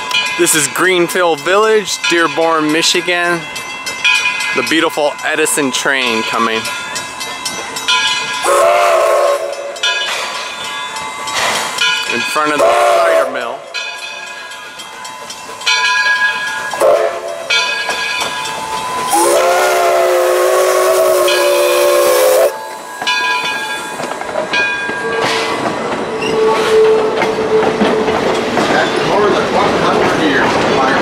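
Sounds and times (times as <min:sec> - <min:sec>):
locomotive bell ringing: 0:00.0 - 0:31.0
train rolling past with hiss: 0:00.0 - 0:31.0
steam whistle blast: 0:08.4 - 0:09.7, 0:12.6 - 0:13.3, 0:16.8 - 0:17.3, 0:19.0 - 0:22.7.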